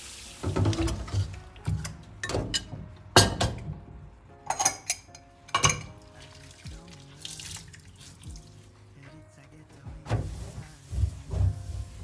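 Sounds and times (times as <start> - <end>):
water sloshing in sink: 0.4 - 2.5, 10.1 - 12.0
glass dish knocking: 5.6 - 6.0.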